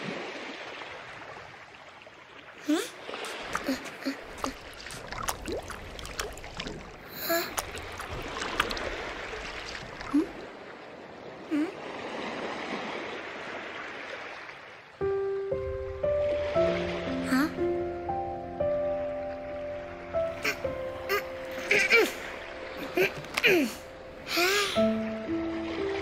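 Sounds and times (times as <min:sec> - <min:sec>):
small splashes: 0:00.0 - 0:14.8, 0:20.3 - 0:26.0
small waves lapping on sand: 0:00.0 - 0:15.1.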